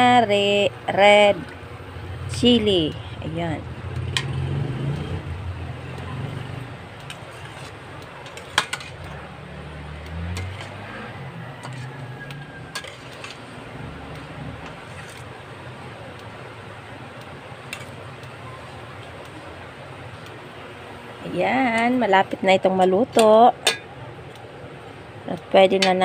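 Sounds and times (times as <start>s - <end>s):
low steady rumble: 0.0s - 26.0s
metal spatula scraping a pot: 7.1s - 9.2s, 10.3s - 10.9s, 11.6s - 13.6s, 14.6s - 15.4s.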